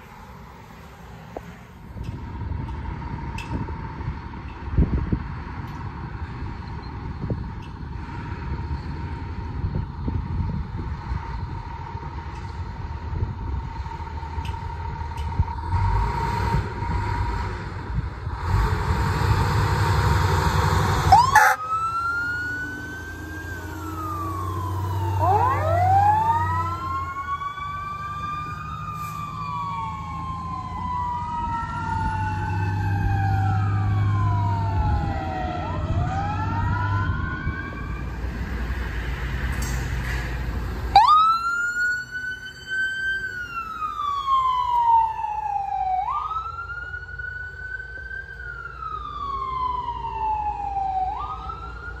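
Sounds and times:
diesel engine running: 1.7 - 29.9
fire engine sirens wailing: 1.9 - 52.0
ambulance siren wailing: 20.0 - 38.3, 40.9 - 52.0.

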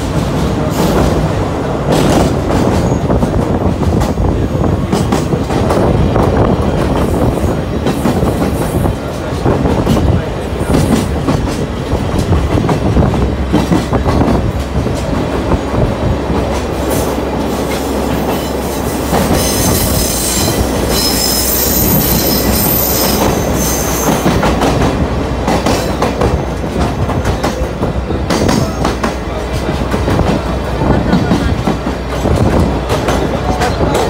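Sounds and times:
train clatter over rail joints: 0.0 - 34.0
wheels squealing: 19.3 - 24.3.

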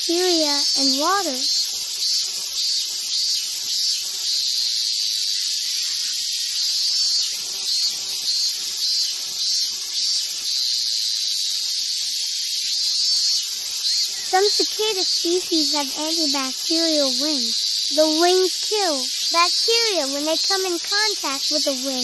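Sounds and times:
cicada buzzing: 0.0 - 22.0.

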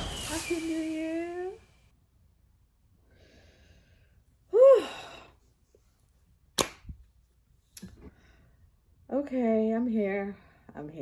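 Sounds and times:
faint breath: 3.0 - 4.2.

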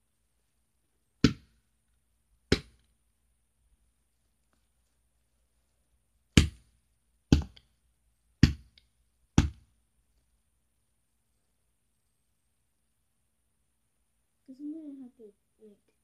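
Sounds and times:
sharp knocks: 9.4 - 9.6.

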